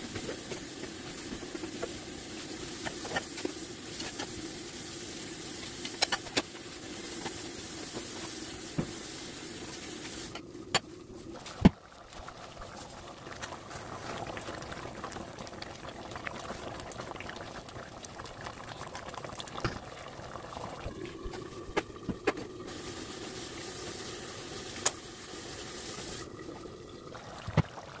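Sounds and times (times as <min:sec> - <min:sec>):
steady hiss: 0:00.0 - 0:10.4, 0:22.7 - 0:26.3
soup bubbling in pot: 0:00.0 - 0:28.0.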